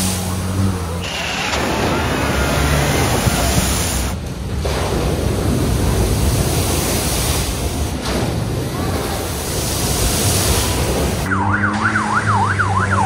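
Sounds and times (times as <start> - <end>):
vehicles splashing through water: 0.0 - 13.0
wind buffeting microphone: 1.5 - 11.3.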